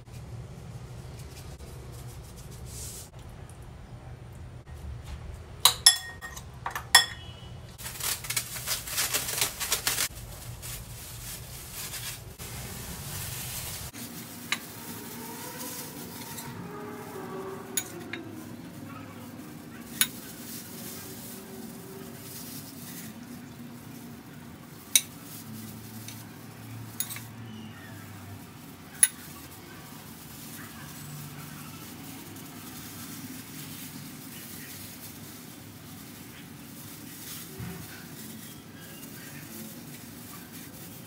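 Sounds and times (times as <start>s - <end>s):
spoon clinking on ceramic bowl: 5.7s - 7.3s
spoon stirring and scraping food: 13.9s - 41.0s.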